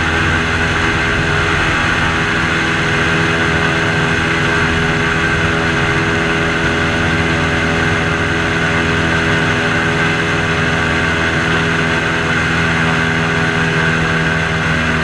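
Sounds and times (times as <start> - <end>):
airboat engine and propeller drone: 0.0 - 15.0.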